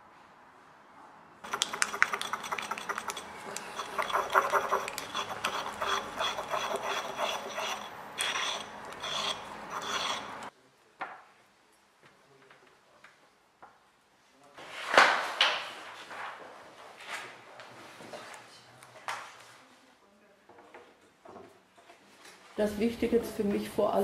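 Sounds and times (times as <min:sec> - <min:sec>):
pestle grinding in a mortar: 0:01.4 - 0:10.5.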